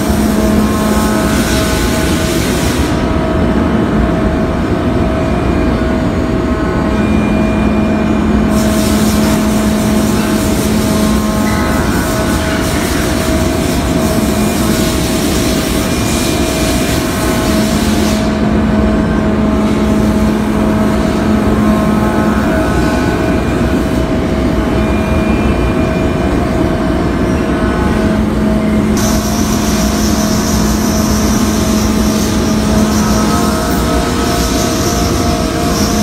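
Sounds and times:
coolant spray hiss: 0.0s - 3.0s, 8.5s - 11.3s, 29.0s - 36.0s
spindle whine: 18.2s - 36.0s.

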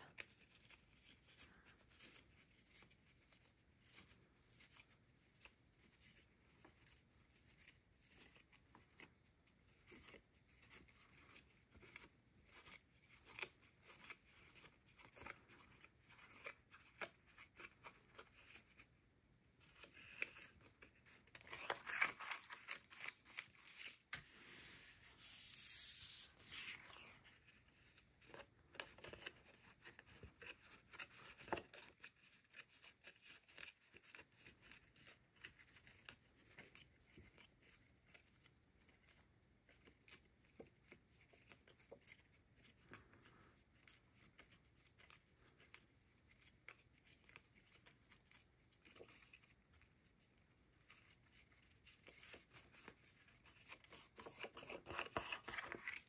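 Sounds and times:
paper rubbing and crinkling: 19.6s - 38.3s
paper rustling and clicking: 52.0s - 56.0s.

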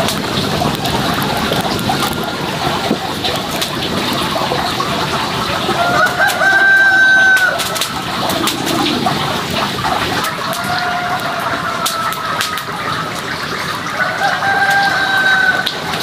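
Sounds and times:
wood fire crackling: 0.0s - 16.0s
rooster crowing: 5.8s - 7.6s, 10.3s - 12.4s, 14.0s - 15.8s.

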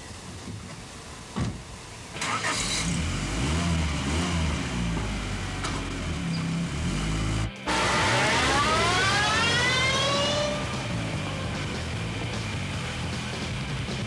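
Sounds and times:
thump: 1.4s - 1.6s
car engine starting and revving: 2.2s - 14.0s.

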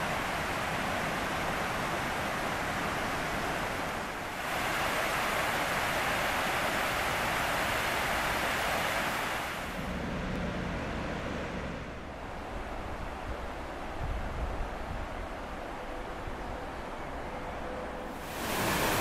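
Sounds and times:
water rushing over weir: 0.0s - 10.0s, 18.1s - 19.0s.

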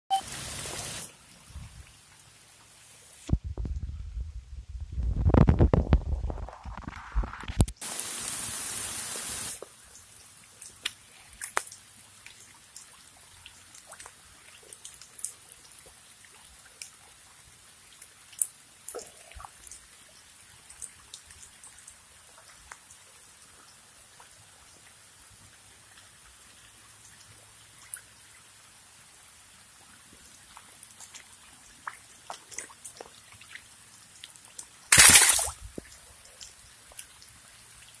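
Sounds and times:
raindrops ticking and dripping: 0.1s - 3.9s, 4.9s - 38.0s.

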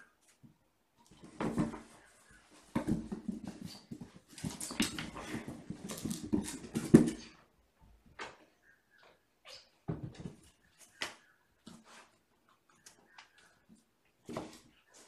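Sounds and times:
kittens scuffling on hard floor: 1.1s - 7.4s.

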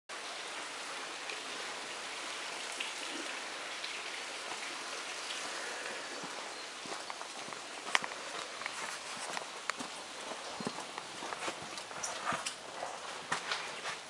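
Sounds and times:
rain on wet pavement: 0.1s - 14.0s
faint drip ticks: 2.7s - 13.6s.

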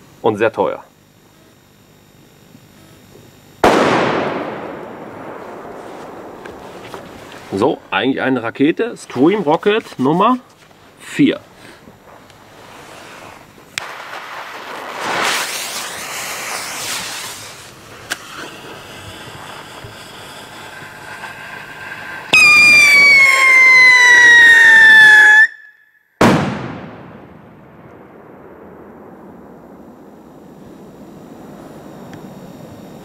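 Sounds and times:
firework bang: 3.6s - 7.7s, 11.6s - 25.5s, 26.2s - 33.0s
firework fizzing hiss: 10.6s - 25.3s
firework screaming whistle: 12.6s - 26.3s.

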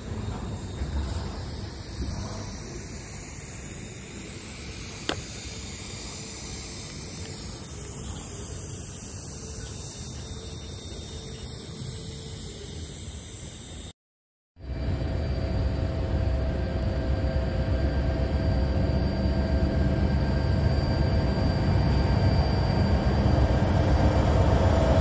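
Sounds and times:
train wheels rumbling on rail: 0.0s - 12.4s, 14.7s - 25.0s.

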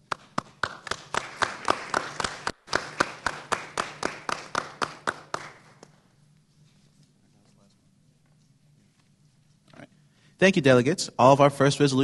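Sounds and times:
people clapping: 0.0s - 6.1s.

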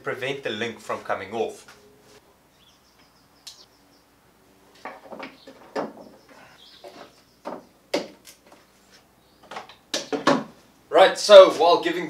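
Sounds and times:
wooden knocks and scrapes: 4.7s - 10.6s.

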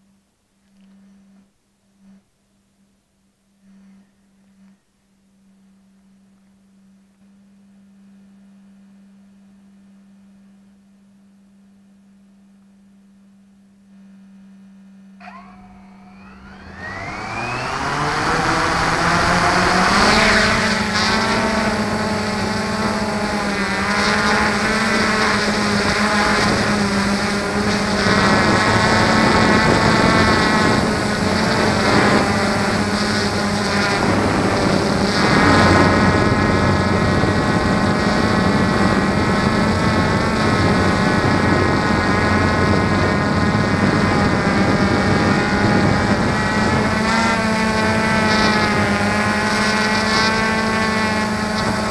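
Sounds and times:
drone motors whining: 15.2s - 51.9s.

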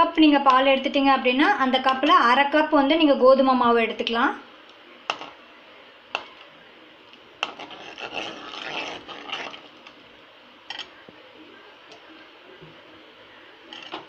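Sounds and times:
spoon scraping metal pan: 7.4s - 9.7s, 13.7s - 14.0s.

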